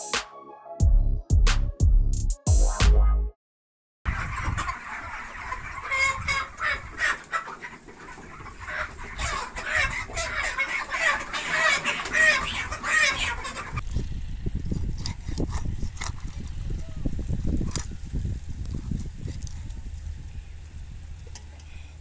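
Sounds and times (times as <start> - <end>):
flock of chickens calling: 4.1 - 13.8, 16.6 - 18.1.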